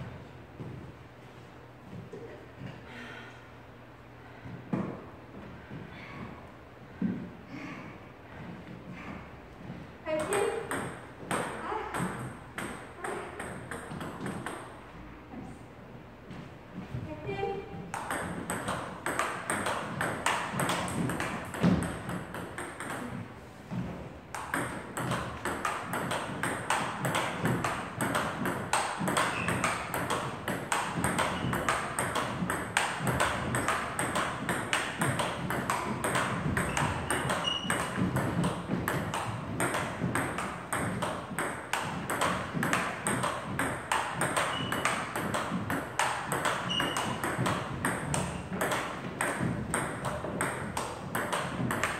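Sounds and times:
ball bouncing on table: 17.9s - 23.2s, 24.3s - 51.9s
bat hitting table tennis ball: 17.9s - 23.2s, 24.3s - 51.9s.

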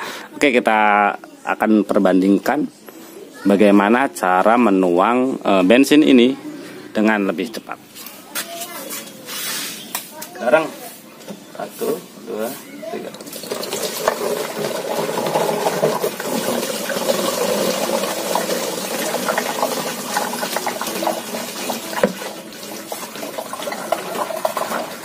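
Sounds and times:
liquid pouring and glugging: 13.0s - 25.0s.

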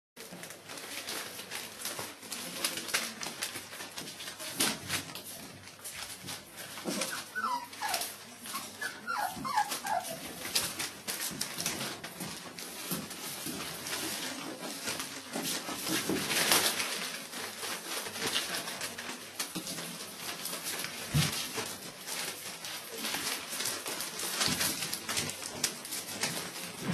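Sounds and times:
puppies rustling newspaper: 0.2s - 26.9s
puppies whimpering squeals: 7.0s - 10.3s.

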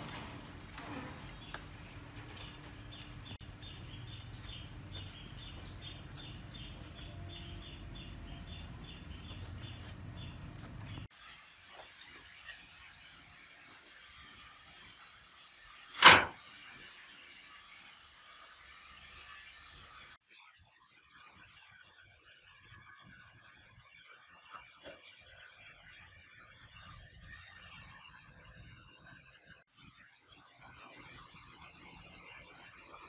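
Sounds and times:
loud sharp knock: 16.0s - 16.4s.

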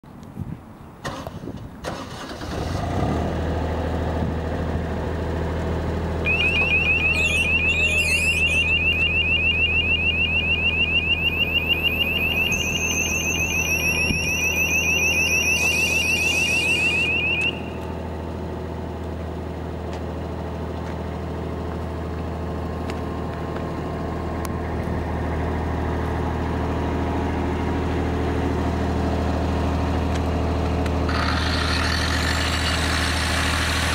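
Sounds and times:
diesel generator engine running: 0.8s - 33.9s
fast high electronic beeping: 6.3s - 17.8s
thin high whine: 6.3s - 17.9s.

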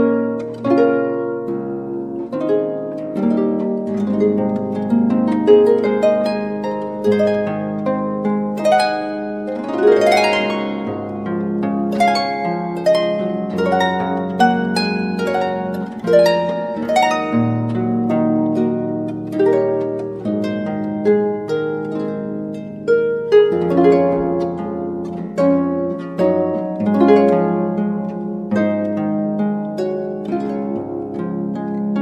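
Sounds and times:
gentle harp-like instrumental music: 0.0s - 32.0s.

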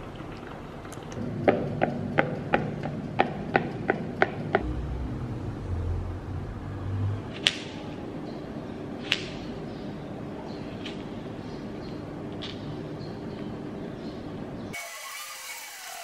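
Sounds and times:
low rumble: 4.5s - 7.4s.

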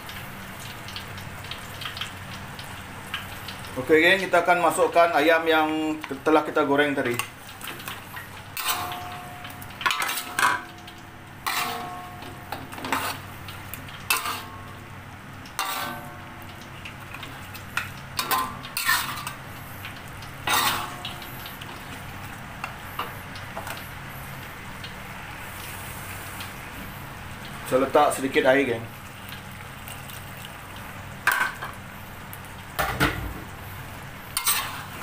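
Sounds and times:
low steady hum: 7.1s - 27.7s
wok ringing: 8.5s - 13.3s, 14.1s - 14.9s, 15.5s - 16.6s, 18.2s - 19.4s, 20.4s - 21.3s, 34.4s - 35.0s
metal spatula scraping a wok: 8.6s - 9.0s, 9.9s - 10.5s, 11.4s - 12.0s, 12.7s - 13.3s, 14.1s - 14.5s, 15.6s - 16.1s, 18.2s - 19.4s, 20.5s - 21.0s, 34.4s - 35.0s.

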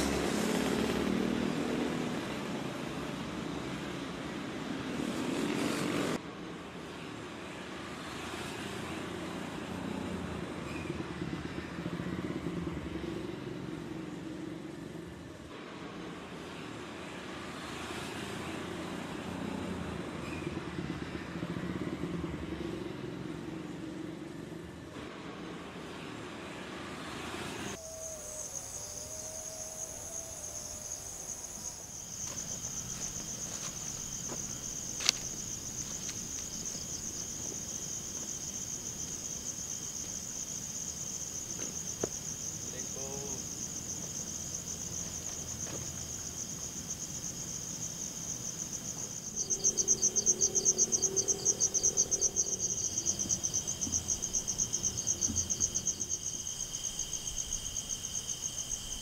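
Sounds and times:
crickets chirring: 27.6s - 59.0s.

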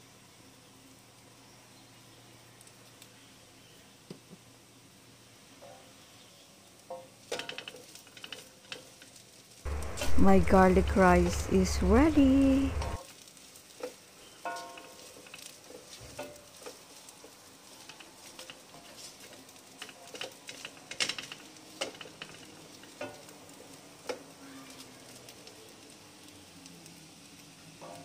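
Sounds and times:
rice sizzling faintly in a pan: 0.0s - 28.0s
spatula scraping and knocking pan: 13.8s - 23.3s.

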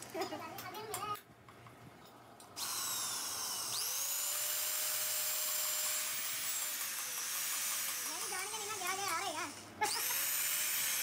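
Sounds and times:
electric drill motor whine: 2.6s - 8.1s, 9.5s - 11.0s.

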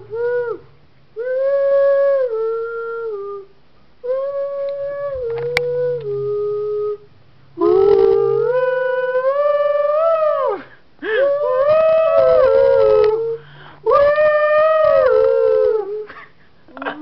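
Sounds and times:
person howling a tune: 0.0s - 0.6s, 7.6s - 16.1s.

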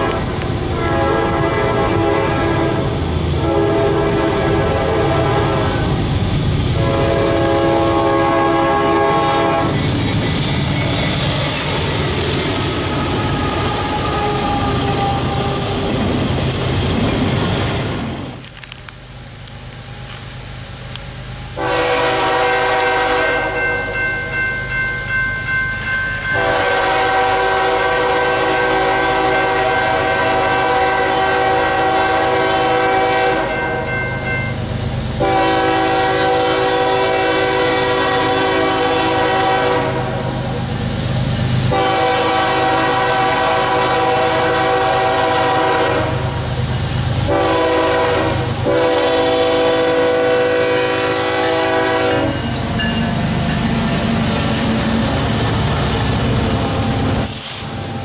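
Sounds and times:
locomotive air horn blasts: 0.0s - 6.0s, 6.8s - 9.8s, 11.7s - 15.9s, 21.6s - 24.0s, 26.3s - 34.0s, 35.2s - 40.5s, 41.7s - 46.5s, 47.2s - 52.7s.

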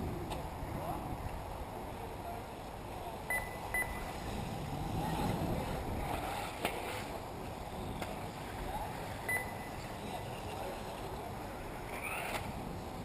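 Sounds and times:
wind noise: 0.0s - 13.0s
short high beeps: 3.3s - 4.1s, 9.3s - 9.8s
rc car motors whining: 9.8s - 12.6s.

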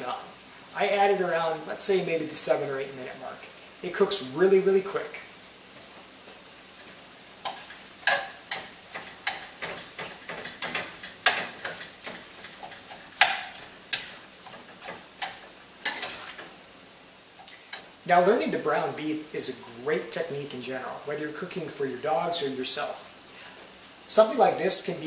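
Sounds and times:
faint sizzle: 0.0s - 25.0s
spatula scraping a steel pot: 13.9s - 16.5s.

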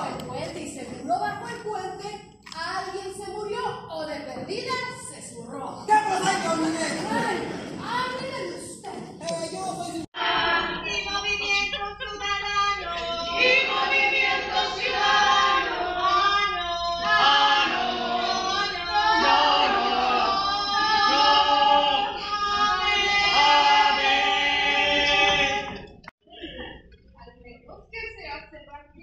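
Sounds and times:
women singing in chorus: 10.2s - 25.9s.

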